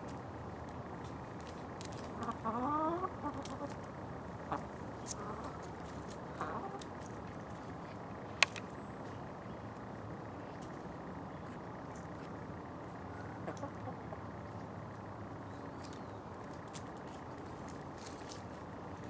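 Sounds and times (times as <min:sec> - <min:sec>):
hen clucking: 0:02.0 - 0:07.8, 0:13.0 - 0:14.6
sharp click: 0:08.4 - 0:08.7.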